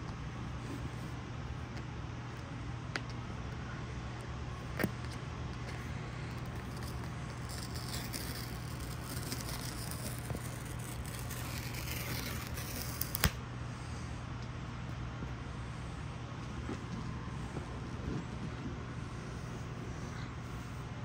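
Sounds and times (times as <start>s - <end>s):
steady low hum: 0.0s - 21.0s
paper tear strip tearing cardboard: 6.4s - 13.4s.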